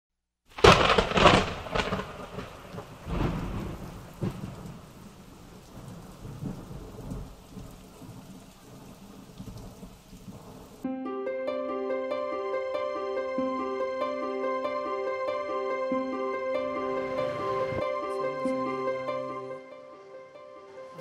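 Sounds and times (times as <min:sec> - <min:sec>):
steady rain: 0:00.5 - 0:10.8, 0:16.0 - 0:21.0
thunder: 0:00.5 - 0:10.8.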